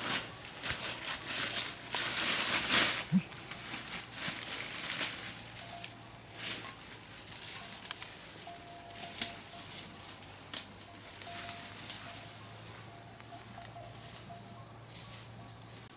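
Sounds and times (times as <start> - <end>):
footsteps through undergrowth: 0.0 - 15.9
leaves and brush rustling: 0.0 - 15.9.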